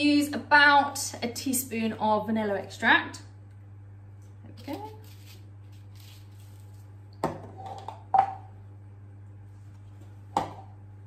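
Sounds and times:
steady low hum: 0.0 - 11.0
kitchenware knocking on worktop: 10.4 - 10.7.

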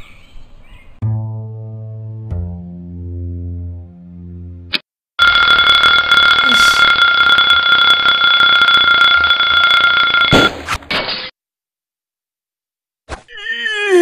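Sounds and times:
bass and strings music: 1.0 - 4.8
alarm bell ringing: 5.2 - 10.5.

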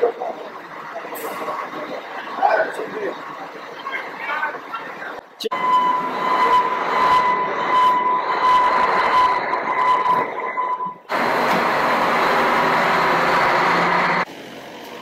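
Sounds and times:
bus engine running: 0.0 - 15.0.

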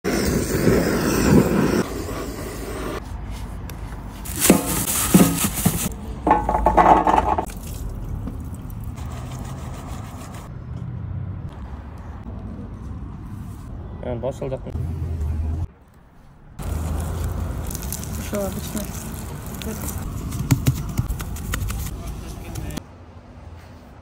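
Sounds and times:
gas torch flame burning: 0.0 - 3.0.

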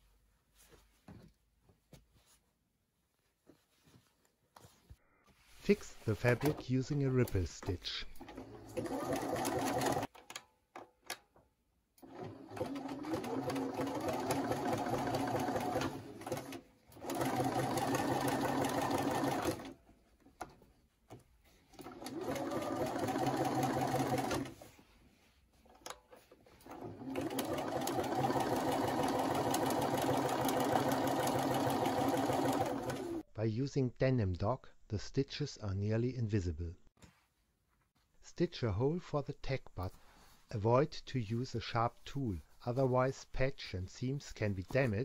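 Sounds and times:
electric sewing machine stitching: 8.2 - 10.1, 12.0 - 19.7, 21.8 - 24.6, 26.6 - 33.2.

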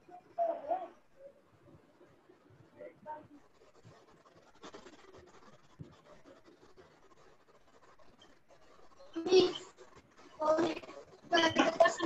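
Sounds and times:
faint scratching: 0.0 - 12.0.

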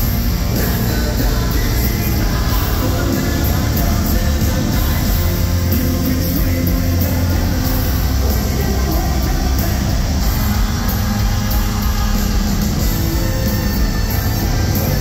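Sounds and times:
hard rock band playing live: 0.0 - 15.0.

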